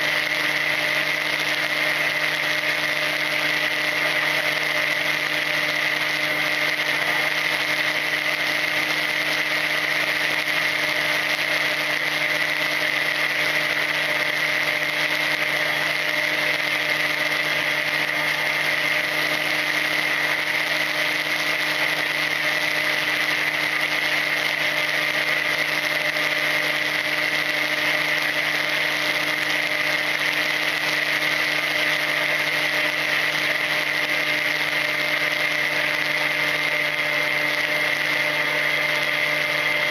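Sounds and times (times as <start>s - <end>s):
electric motor and propeller whine: 0.0s - 39.9s.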